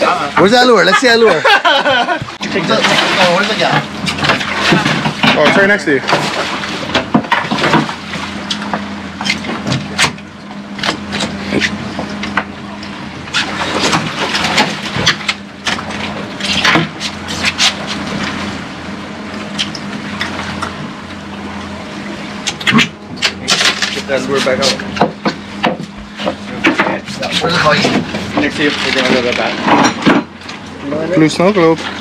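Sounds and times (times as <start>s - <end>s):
boat engine droning: 0.0s - 32.0s
water rushing along hull: 0.0s - 32.0s.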